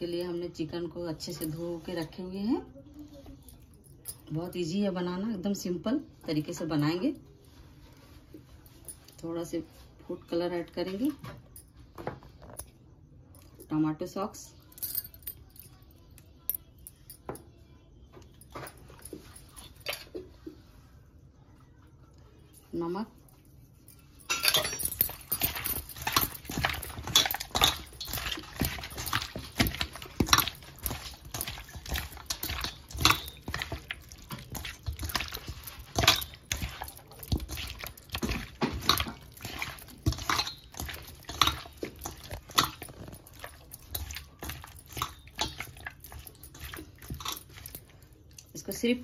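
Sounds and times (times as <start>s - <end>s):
wet squelches of hand mixing meat: 25.1s - 49.0s.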